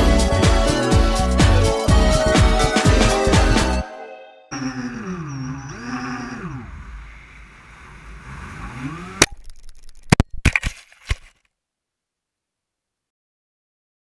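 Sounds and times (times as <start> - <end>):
drone motors and propellers whining: 4.5 - 9.3.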